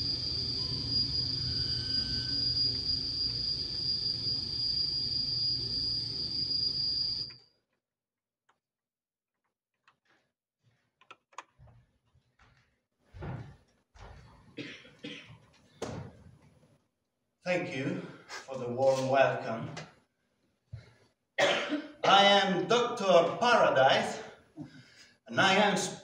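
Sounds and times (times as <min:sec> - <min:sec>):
mechanical drone with high squeal: 0:00.0 - 0:07.4.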